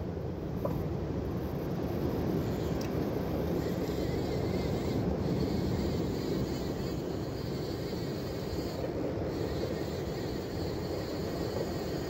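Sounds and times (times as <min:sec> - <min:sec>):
wind: 0:00.0 - 0:12.0.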